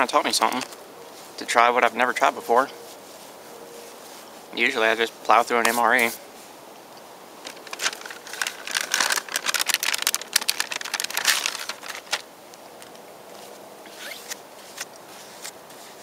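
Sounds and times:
plastic and foil pouch crinkling: 7.4 - 13.0.

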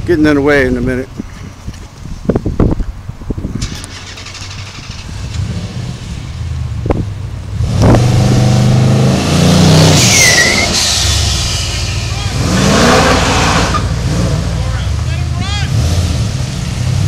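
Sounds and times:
car engine revving: 3.6 - 17.0
tire squeal: 9.7 - 14.1.

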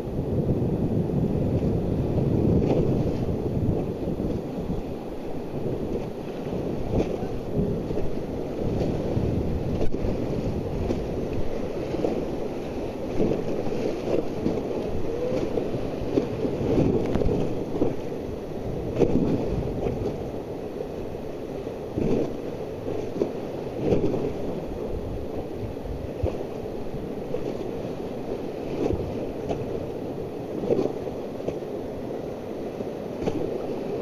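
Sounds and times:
wind buffeting microphone: 0.0 - 34.0
whitewater rapids rushing: 3.5 - 19.7.

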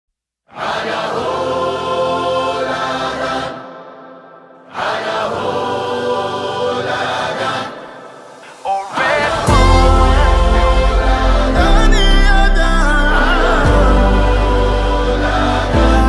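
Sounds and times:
choral held chords: 0.5 - 16.0
short rising musical phrase: 8.5 - 16.0.

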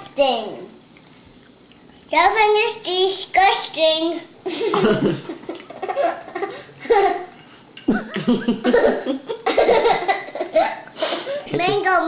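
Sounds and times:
laughter: 4.4 - 7.3, 7.9 - 10.9.

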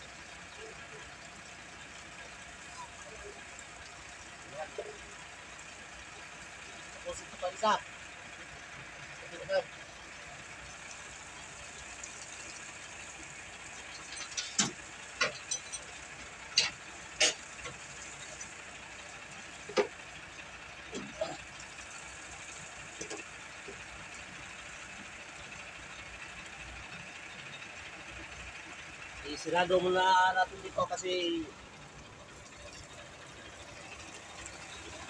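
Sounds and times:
sharp clicks and knocks on metal fittings: 13.9 - 17.8.

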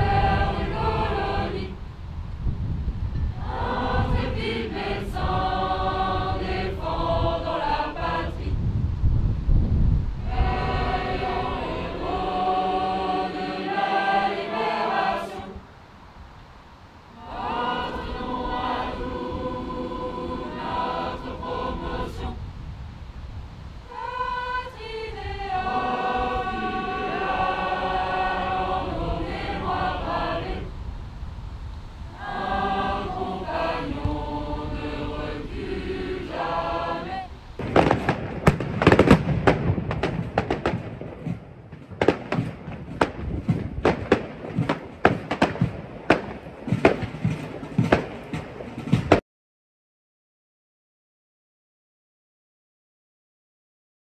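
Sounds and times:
group singing in chorus: 0.0 - 1.9, 3.3 - 8.7, 10.2 - 15.7, 17.1 - 22.5, 23.8 - 30.8, 32.0 - 38.1.

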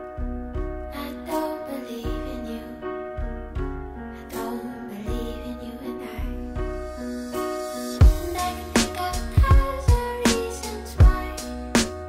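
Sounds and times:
repeating low beat: 8.0 - 10.3, 11.0 - 12.0.

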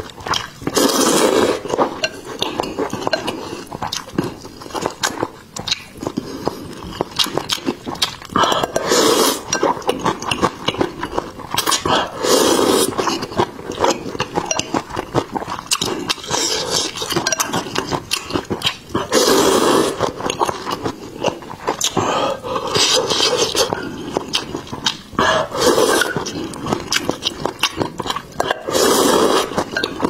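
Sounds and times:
noodle slurping: 0.0 - 2.1, 8.3 - 10.8, 11.5 - 14.3, 15.4 - 27.8, 28.4 - 30.0
wet chewing: 0.0 - 30.0.

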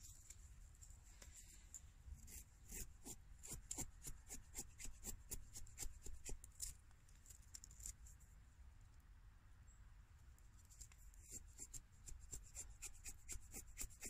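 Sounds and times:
knife scraping wooden stick: 2.2 - 6.8, 10.8 - 14.0.

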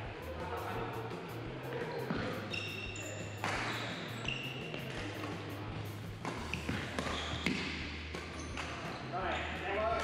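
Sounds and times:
shoes squeaking on wooden floor: 1.9 - 5.1, 6.2 - 7.6
rackets striking shuttlecock: 2.1 - 5.4, 6.1 - 8.9.

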